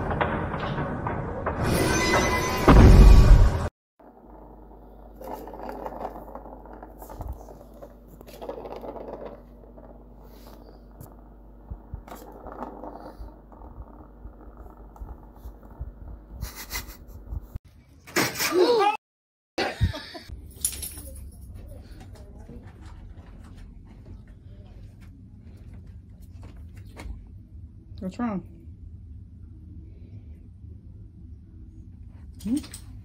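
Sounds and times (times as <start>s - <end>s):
ball rattling in toy track: 4.1s - 11.2s.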